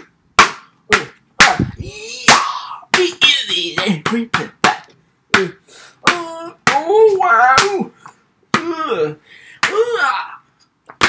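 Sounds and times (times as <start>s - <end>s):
sharp slaps: 0.0s - 7.9s.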